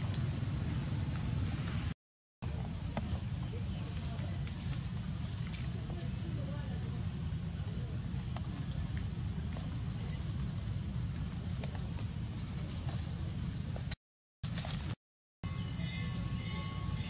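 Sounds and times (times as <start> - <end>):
high-pitched insect chorus: 2.5 - 13.9, 15.5 - 17.0.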